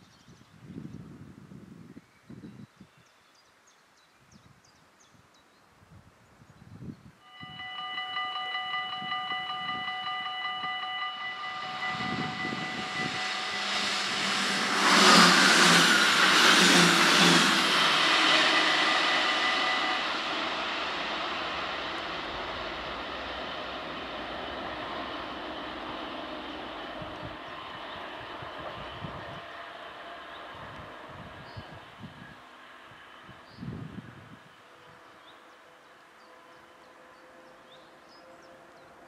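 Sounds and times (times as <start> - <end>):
train passing: 7.2 - 39.0
level crossing bell ringing: 7.3 - 13.9.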